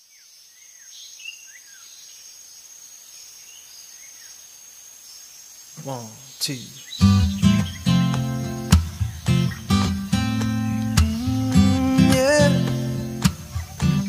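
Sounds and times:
person speaking: 5.8 - 6.9
bird chirps: 5.8 - 14.0
high-pitched insect drone: 5.8 - 14.0
strummed guitar music: 7.0 - 14.0.

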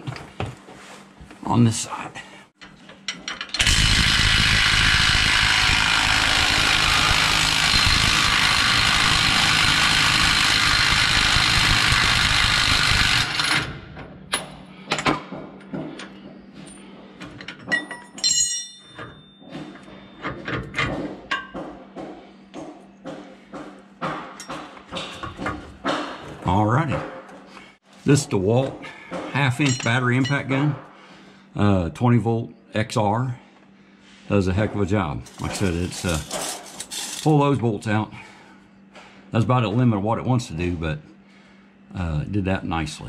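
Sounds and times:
impact wrench hammering: 3.5 - 16.0, 18.5 - 27.4
metallic clinks and knocks: 14.3 - 21.8, 29.6 - 30.5.

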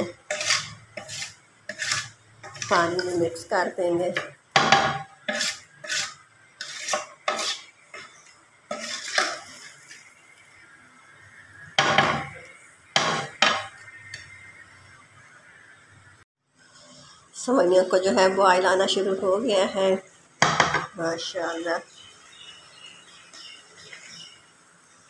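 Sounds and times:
wooden spatula scraping metal pot: 0.0 - 10.1.

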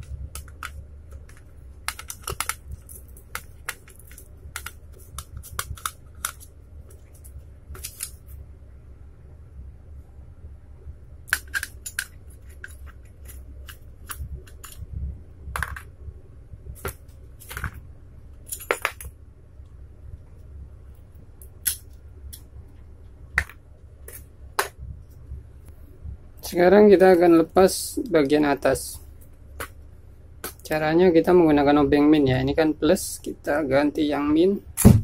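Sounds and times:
low steady hum: 0.0 - 35.0
screwdriver and metal parts clinking: 11.3 - 14.8, 18.4 - 19.1.

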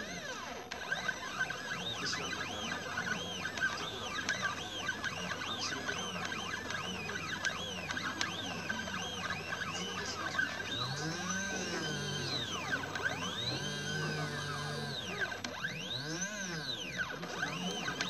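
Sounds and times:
stepper motors whining: 0.0 - 18.0
steady high tone: 10.8 - 15.3.

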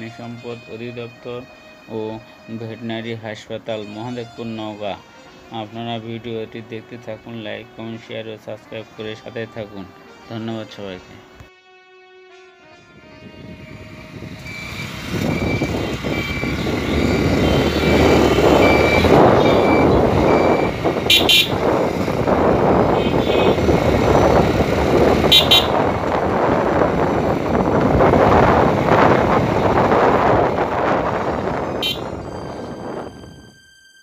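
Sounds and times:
vehicle engine and road noise: 0.0 - 11.5, 12.9 - 33.6
short horn-like beeps: 14.4 - 21.7, 22.9 - 23.7, 25.2 - 26.0, 31.6 - 34.0
bright rings: 31.9 - 34.0.

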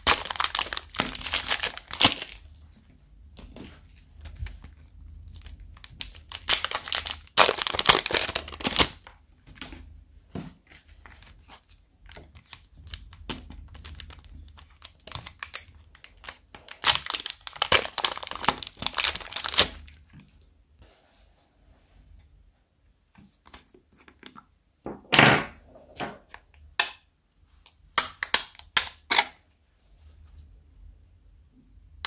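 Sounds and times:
plastic bags crinkling and tearing: 0.0 - 2.5, 3.4 - 9.1, 11.1 - 20.2.

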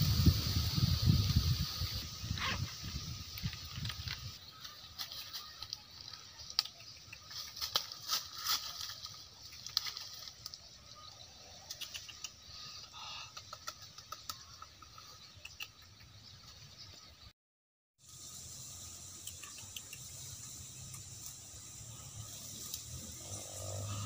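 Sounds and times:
leaves rustling: 0.0 - 11.2
dry leaf litter crackling: 4.4 - 11.0.

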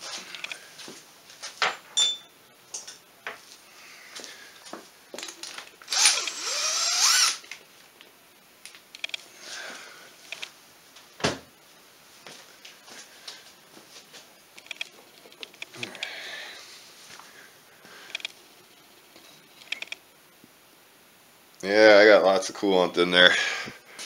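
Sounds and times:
power drill spinning: 5.8 - 7.5.

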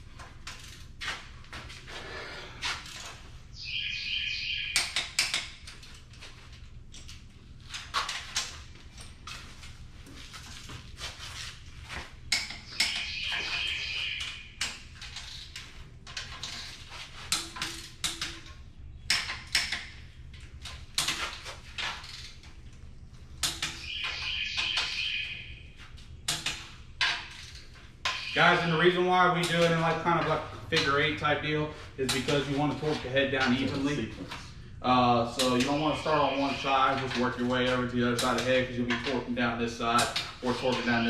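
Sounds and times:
wrenches clicking on metal: 35.4 - 41.0.

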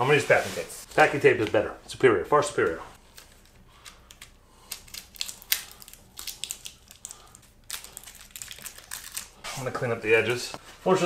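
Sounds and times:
packing tape crackling: 3.0 - 9.5.

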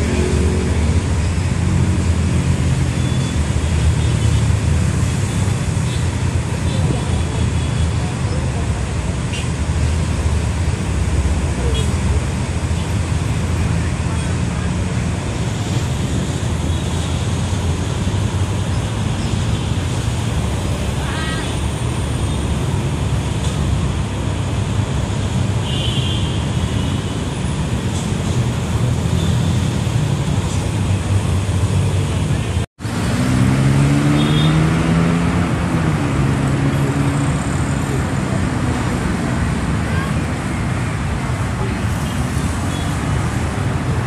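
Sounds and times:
city road traffic: 0.0 - 44.0.

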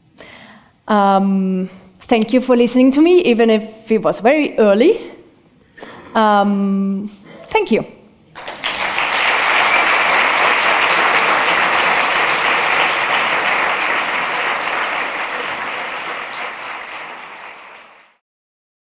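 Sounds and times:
audience applauding: 8.4 - 18.2.

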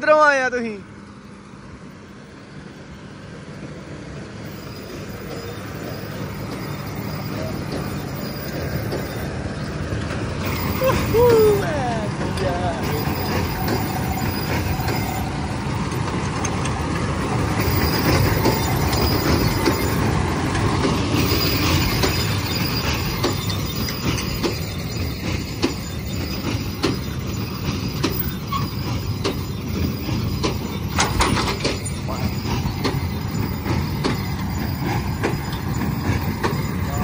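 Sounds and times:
tractor engine running under load: 0.9 - 37.0
baler mechanism clattering: 15.8 - 37.0.

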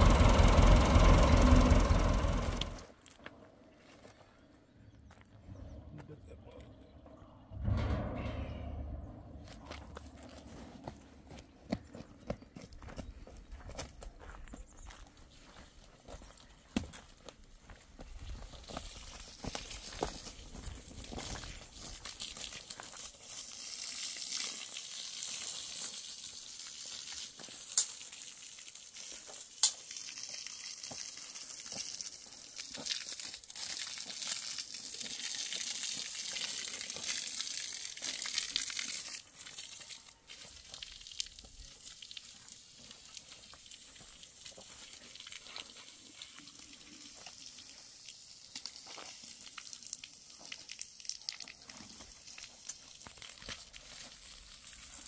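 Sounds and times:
hose water splashing on sand: 18.5 - 55.0.

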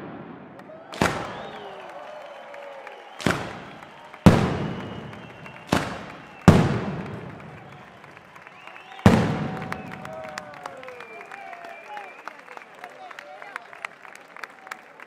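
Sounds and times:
loud firecracker bangs echoing: 0.0 - 1.8, 3.2 - 7.9, 8.9 - 10.3.

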